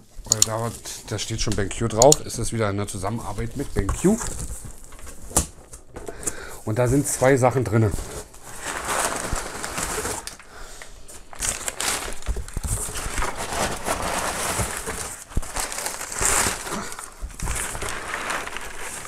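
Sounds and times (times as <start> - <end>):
packing paper crinkling: 0.2 - 19.0.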